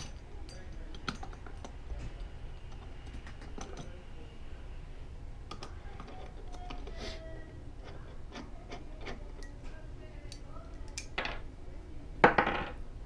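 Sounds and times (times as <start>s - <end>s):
small metal parts clicking: 0.0s - 4.0s, 5.5s - 7.0s, 10.3s - 11.3s.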